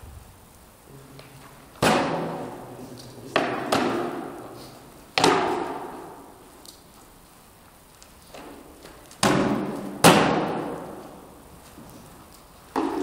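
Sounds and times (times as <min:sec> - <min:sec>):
swords striking wooden shields: 0:01.8 - 0:02.6, 0:03.4 - 0:04.4, 0:05.2 - 0:06.2, 0:09.2 - 0:10.8, 0:12.8 - 0:13.0.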